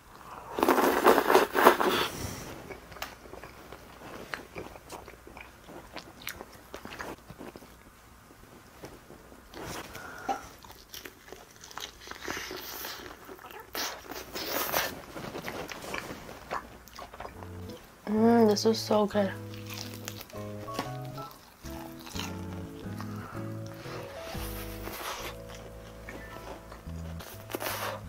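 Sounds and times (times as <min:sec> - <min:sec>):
chewing: 0:00.1 - 0:17.9, 0:19.4 - 0:28.0
crunchy bites of fried chicken: 0:00.4 - 0:02.2, 0:19.6 - 0:24.1.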